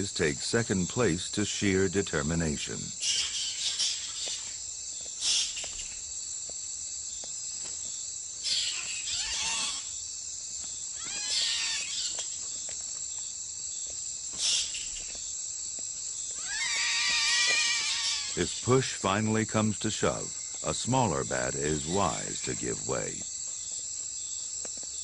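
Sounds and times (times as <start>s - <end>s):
night insects droning: 0.0s - 25.0s
bats squeaking and chittering: 3.0s - 6.1s, 8.4s - 10.0s, 10.9s - 12.7s, 14.3s - 15.4s, 16.2s - 24.4s.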